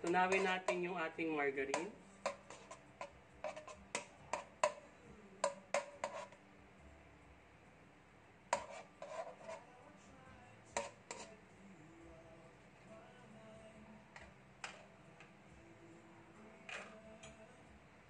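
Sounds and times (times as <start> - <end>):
metal spoon scraping a wok: 0.0 - 4.8, 5.4 - 6.4, 8.5 - 9.7, 10.8 - 11.4, 16.7 - 17.0.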